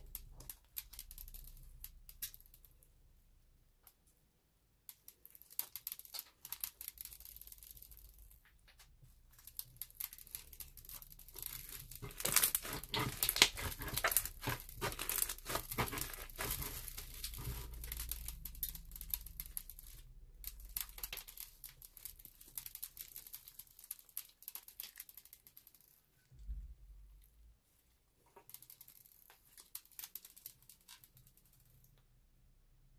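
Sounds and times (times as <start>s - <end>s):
slime crackling and popping: 0.0s - 2.9s, 4.9s - 26.0s.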